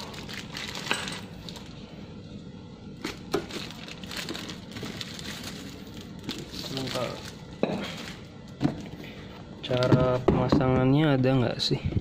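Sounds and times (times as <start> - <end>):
plastic wrapping crinkling: 0.0 - 1.8, 3.0 - 8.3.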